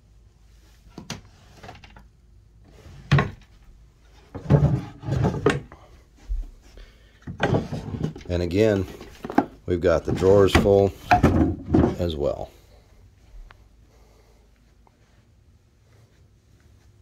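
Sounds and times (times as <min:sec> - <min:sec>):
drawer sliding scrape: 0:02.7 - 0:03.4, 0:04.3 - 0:05.7, 0:07.4 - 0:08.3.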